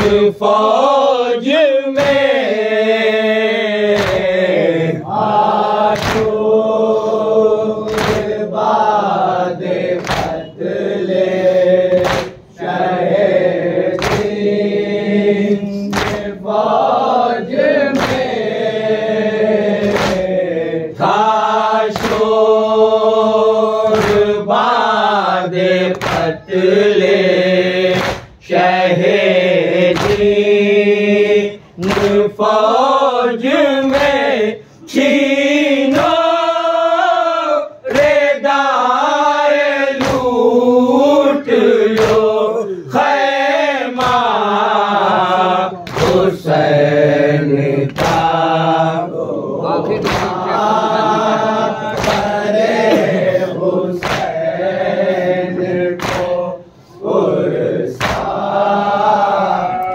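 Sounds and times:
men chanting in unison: 0.0 - 59.9
chest-beating slaps: 1.9 - 2.5, 3.8 - 4.5, 5.7 - 6.6, 7.8 - 9.1, 9.7 - 10.6, 11.8 - 13.0, 13.8 - 14.7, 15.4 - 17.1, 17.8 - 18.6, 19.7 - 22.4, 23.8 - 24.4, 25.8 - 26.5, 27.8 - 28.7, 29.8 - 30.6, 31.2 - 32.5, 33.8 - 34.4, 35.8 - 36.4, 37.9 - 38.3, 40.0 - 40.5, 41.9 - 42.4, 43.0 - 46.6, 47.8 - 48.6, 49.8 - 54.6, 55.5 - 56.6, 58.0 - 58.6.

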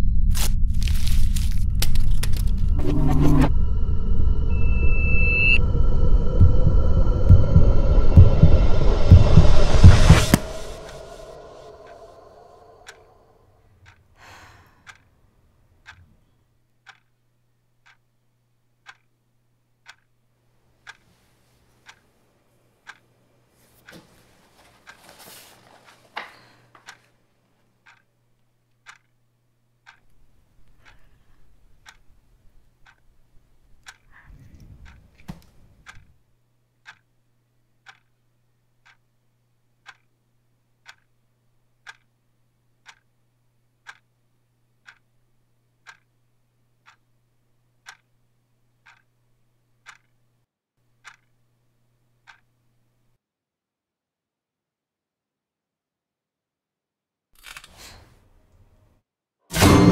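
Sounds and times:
low rumble: 0.0 - 13.2
clock ticking: 6.3 - 13.0, 14.8 - 15.0, 15.8 - 16.1, 16.8 - 17.2, 17.8 - 18.1, 18.8 - 19.2, 19.8 - 20.2, 20.8 - 21.1, 21.8 - 22.1, 22.8 - 23.1, 27.8 - 34.0, 34.8 - 35.2, 36.8 - 37.2, 37.8 - 38.2, 38.8 - 41.2, 41.8 - 46.2, 46.8 - 48.2, 48.8 - 49.2, 49.8 - 50.3, 50.9 - 52.5.

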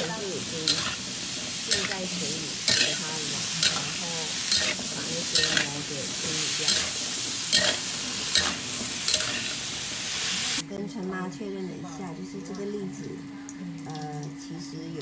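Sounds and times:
food sizzling in oil: 0.0 - 10.6
metal spatula scraping wok: 0.0 - 10.6.

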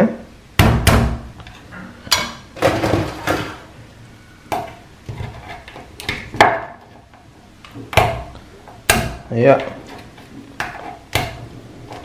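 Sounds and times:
hammer cracking crab shell: 7.9 - 8.3, 8.9 - 9.3.

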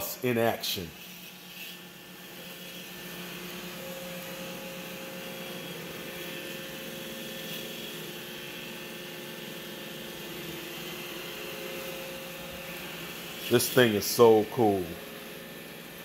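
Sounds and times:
robot vacuum whirring: 0.6 - 16.0.

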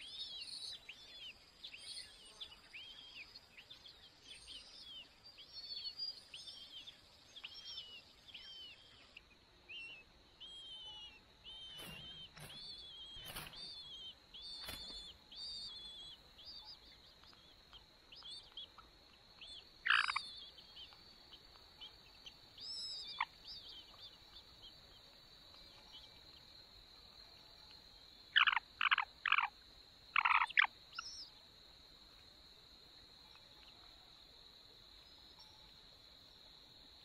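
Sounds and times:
high insect drone: 0.0 - 37.0
chick begging calls: 19.9 - 20.2, 30.2 - 30.7.

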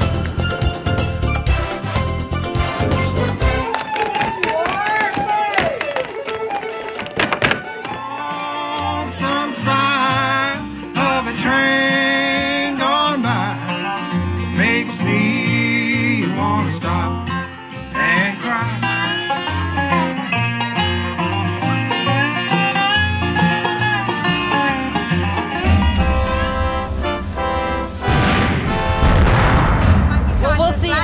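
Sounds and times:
country string-band music: 0.0 - 29.0.

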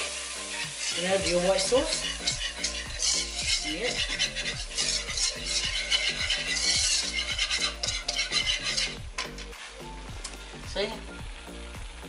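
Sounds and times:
whisk scraping a metal pan: 0.0 - 9.6
background music: 0.0 - 12.0.

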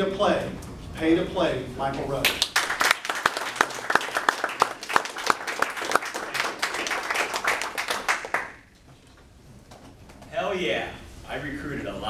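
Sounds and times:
audience applauding: 2.3 - 8.7.

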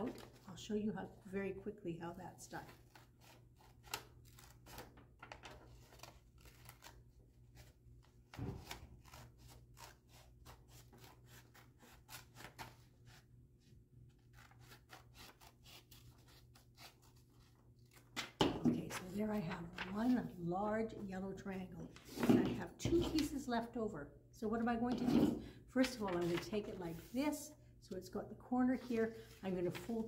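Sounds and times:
scissors cutting paper: 8.7 - 12.7, 14.3 - 17.2.

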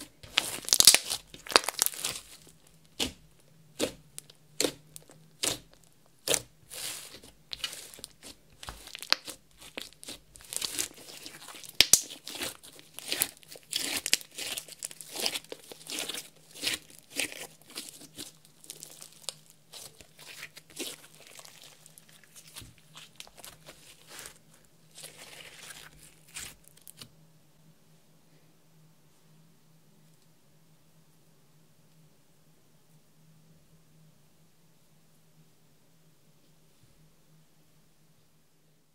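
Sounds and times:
slime clicking and popping: 0.3 - 2.2, 7.5 - 10.9, 11.5 - 14.9.

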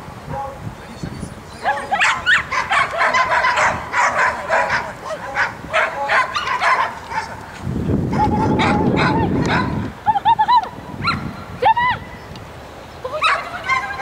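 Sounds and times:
dogs barking: 0.2 - 0.6, 1.6 - 7.5, 8.1 - 9.8, 11.0 - 11.4, 13.1 - 14.0.

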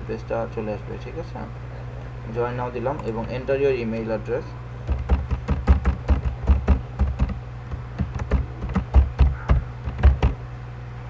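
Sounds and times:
typing on keyboard: 4.9 - 10.4.

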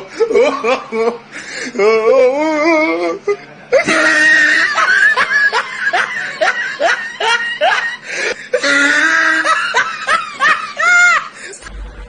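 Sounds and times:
person laughing: 3.7 - 11.8.

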